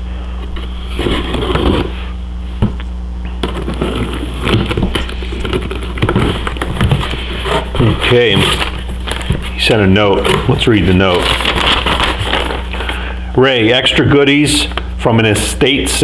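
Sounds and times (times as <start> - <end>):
steady low hum: 0.0 - 16.0
cardboard scraping and crackling: 0.5 - 13.0.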